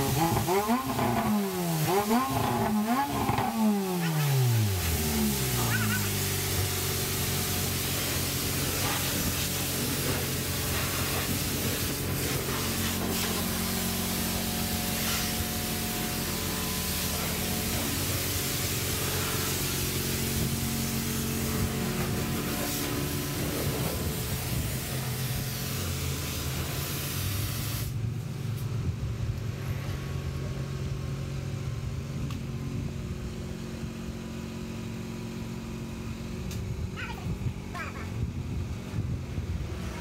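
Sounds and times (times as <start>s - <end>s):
pressure washer spraying water: 0.0s - 28.0s.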